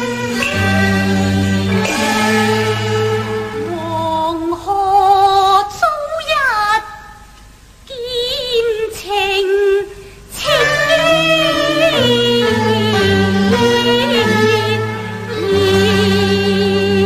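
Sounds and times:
instrumental ensemble: 0.0s - 5.1s, 10.4s - 17.0s
woman singing opera with vibrato: 0.0s - 7.2s, 7.9s - 17.0s.

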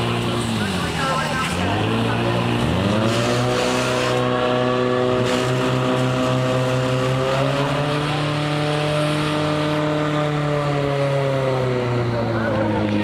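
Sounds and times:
water jets spraying: 0.0s - 10.0s
fire pump engines running: 0.0s - 13.0s.

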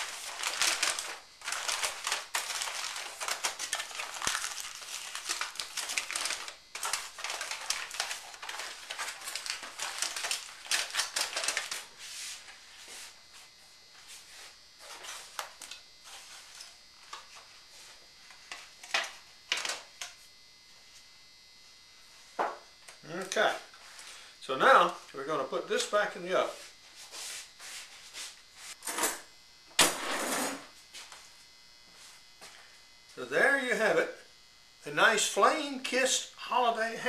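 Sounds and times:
aluminium foil crinkling: 0.0s - 12.9s.

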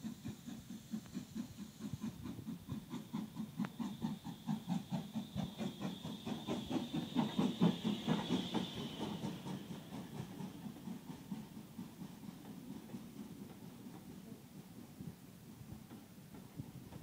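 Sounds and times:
steam locomotive chuffing: 0.0s - 17.0s.

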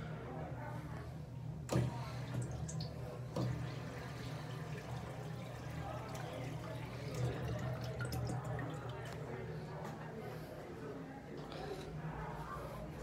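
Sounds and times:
urinal flushing rushing water: 1.7s - 9.4s.

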